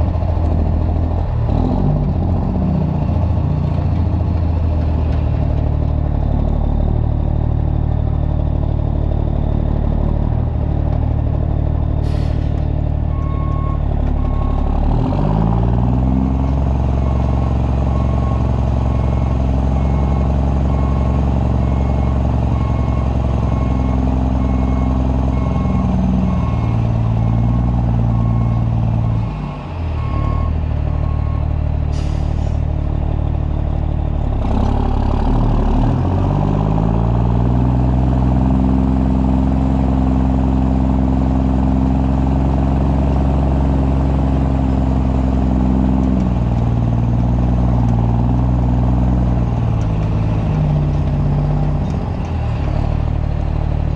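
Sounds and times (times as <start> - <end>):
unmuffled diesel truck engine: 0.0 - 53.9.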